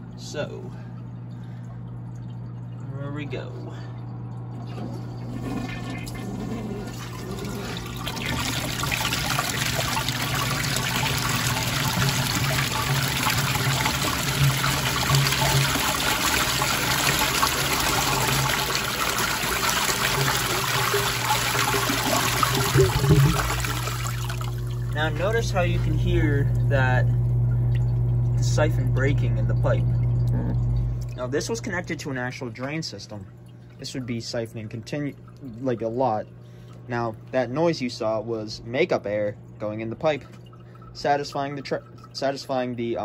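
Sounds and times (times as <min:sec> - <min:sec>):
water surging as siphon breaks: 0:04.6 - 0:26.7
water gushing into plastic bin: 0:04.6 - 0:26.8.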